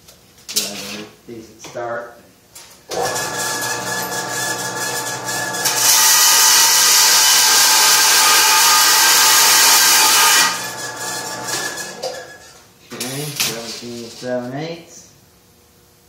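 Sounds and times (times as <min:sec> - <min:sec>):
band saw running: 0:02.9 - 0:12.4.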